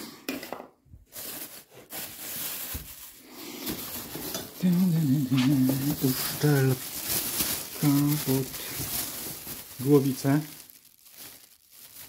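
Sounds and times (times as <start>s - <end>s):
plastic bags rustling: 0.9s - 12.0s
man's voice: 4.6s - 6.9s, 7.7s - 8.8s, 9.8s - 10.6s.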